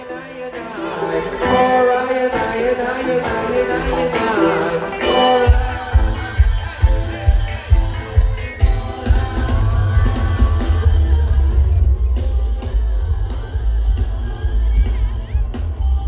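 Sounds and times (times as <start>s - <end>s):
live reggae band: 0.0s - 16.0s
person singing: 0.0s - 16.0s
bass and kick drum beat: 5.5s - 16.0s.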